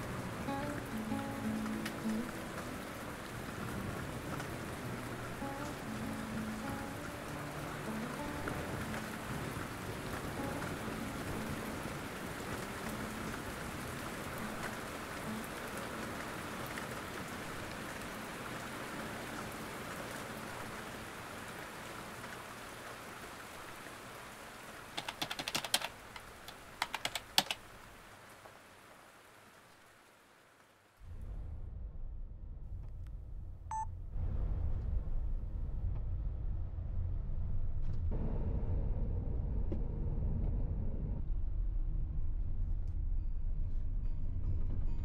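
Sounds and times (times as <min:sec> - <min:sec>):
steady rain: 0:00.0 - 0:31.4
keyboard typing clicks: 0:25.0 - 0:27.6.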